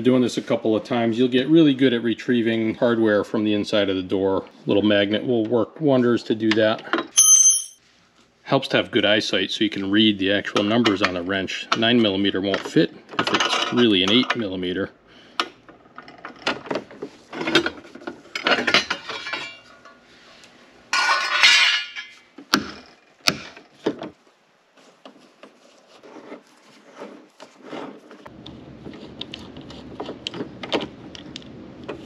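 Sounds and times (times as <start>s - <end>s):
metal tools clinking: 7.1s - 7.8s.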